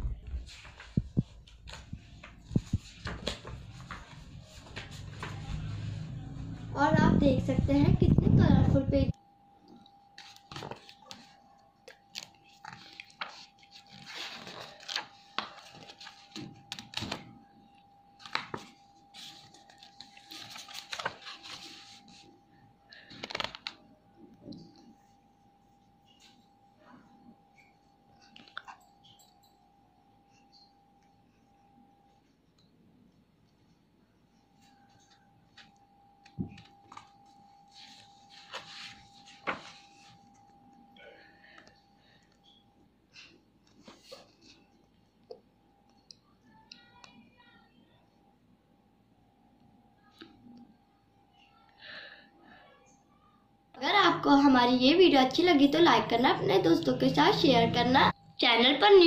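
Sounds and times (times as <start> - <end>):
faint steady hum: 0.0 - 59.0
pages rustling: 0.4 - 6.0, 10.2 - 17.4, 18.2 - 22.4, 23.0 - 23.9, 36.4 - 40.3.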